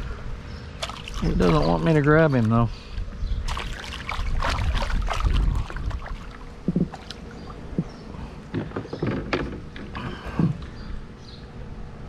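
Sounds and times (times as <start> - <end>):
fish thrashing and splashing in water: 0.8 - 2.6, 3.4 - 7.6.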